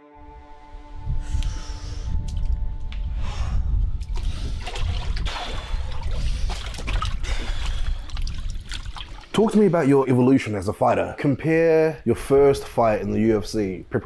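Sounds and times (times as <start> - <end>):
steady low rumble: 0.2 - 9.0
water sloshing in a tub: 4.1 - 9.8.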